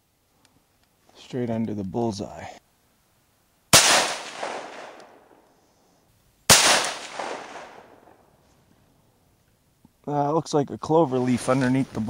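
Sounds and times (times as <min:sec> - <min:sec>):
rifle shots with echo: 0:03.7 - 0:05.4, 0:06.5 - 0:08.2.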